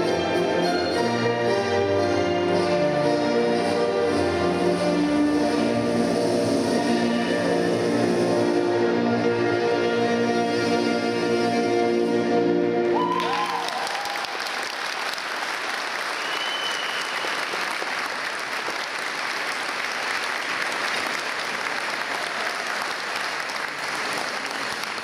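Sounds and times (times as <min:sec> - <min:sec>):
orchestral music: 0:00.0 - 0:13.9
audience applause: 0:12.9 - 0:25.0.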